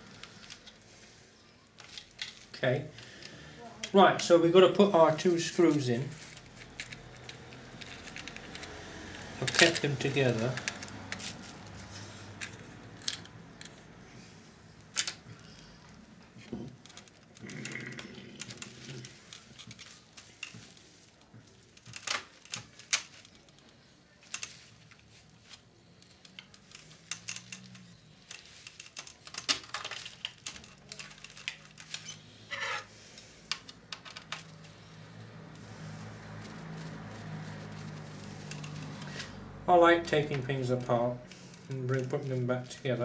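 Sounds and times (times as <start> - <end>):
small clicks and taps of parts: 18.4 - 32.2, 33.4 - 34.8.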